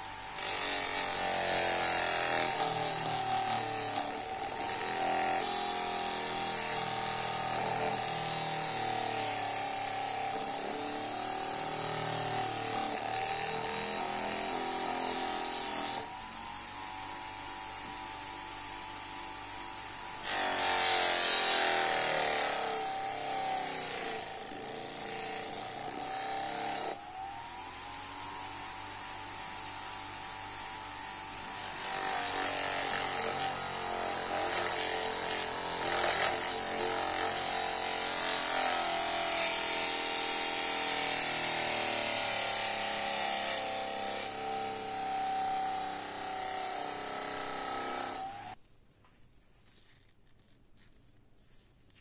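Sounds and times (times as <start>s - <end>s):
metal grinding rasp: 0.0s - 16.1s, 20.2s - 27.0s, 31.4s - 48.6s
bench grinder motor whine: 26.0s - 48.6s.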